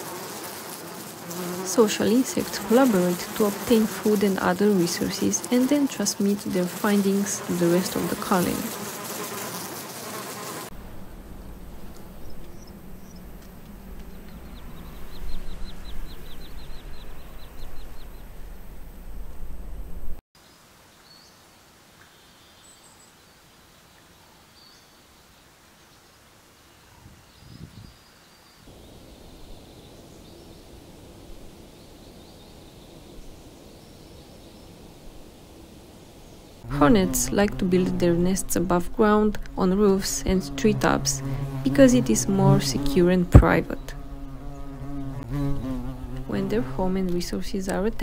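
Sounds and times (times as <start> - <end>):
honeybees buzzing: 0.0 - 18.9, 28.7 - 48.0
outdoor background noise: 0.0 - 48.0
low wind rumble: 10.7 - 20.2, 28.7 - 44.9.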